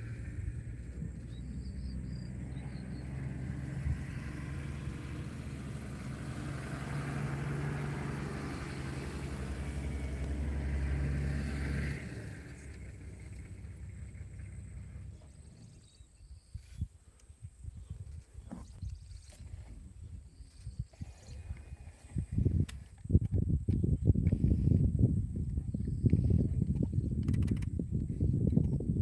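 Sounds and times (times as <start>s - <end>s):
vehicle engine humming: 0.0s - 16.7s.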